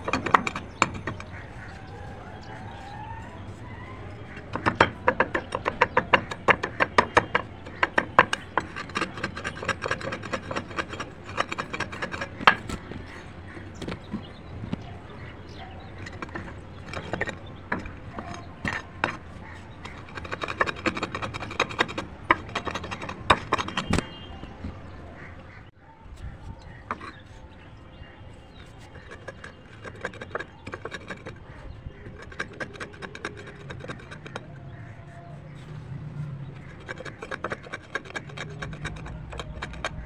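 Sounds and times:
slate pencils crunching under stone: 3.6s - 24.8s, 36.6s - 40.0s.

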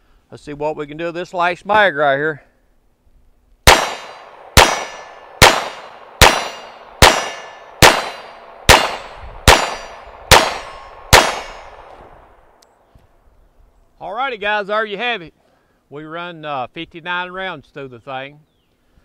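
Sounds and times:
pistol shots: 3.6s - 12.3s.

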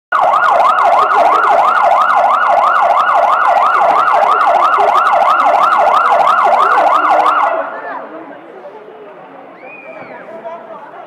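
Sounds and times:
siren yelping: 0.1s - 7.8s.

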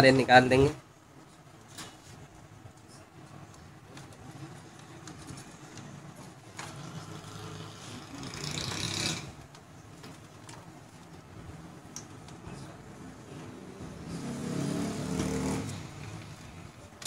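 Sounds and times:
loud rushing noise: 13.4s - 16.4s.

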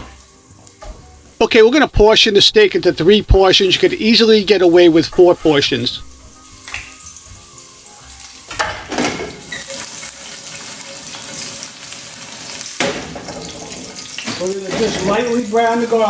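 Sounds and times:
garlic sizzling in oil: 0.0s - 16.0s.

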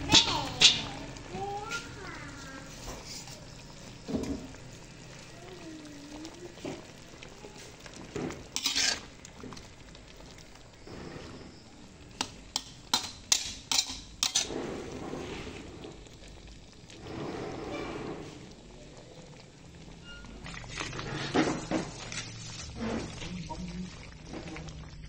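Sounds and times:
metal spatula scraping wok: 8.2s - 9.2s, 12.2s - 15.7s, 17.0s - 18.5s, 20.0s - 23.3s
spatula clinking on pan: 12.2s - 14.5s.

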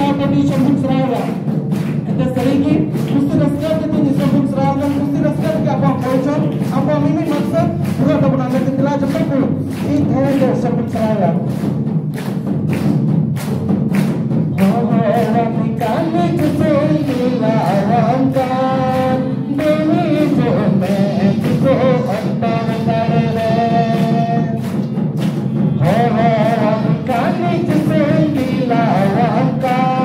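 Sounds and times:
steady beat: 0.0s - 30.0s
people singing worship song: 14.6s - 30.0s.

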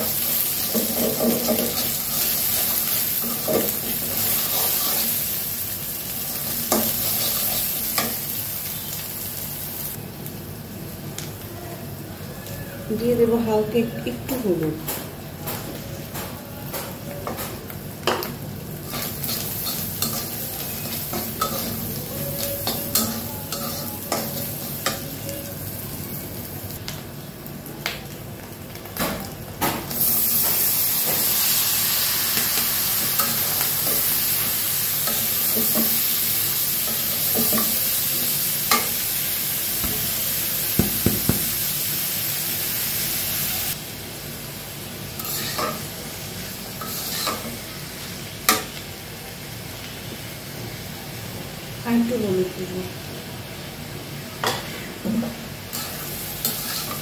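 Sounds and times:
egg sizzling: 0.0s - 10.5s, 18.6s - 49.2s, 55.4s - 57.0s
vegetables sizzling in hot oil: 0.0s - 57.0s
steel spatula scraping a pan: 0.6s - 5.2s, 18.9s - 25.2s, 45.2s - 45.8s, 46.8s - 47.5s, 55.7s - 57.0s.

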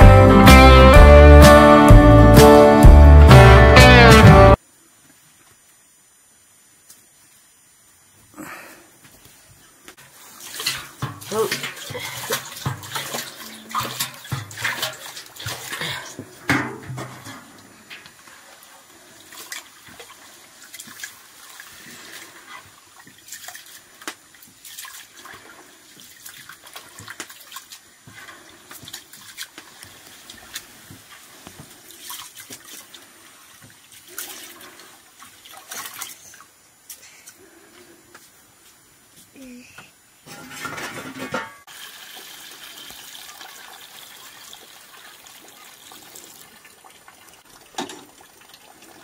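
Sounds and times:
hands washing rice in water: 10.1s - 16.4s, 18.3s - 36.4s.

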